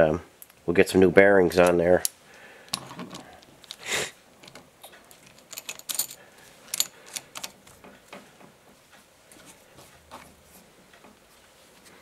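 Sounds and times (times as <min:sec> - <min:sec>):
light metallic clinks and clicks: 0:04.4 - 0:07.6.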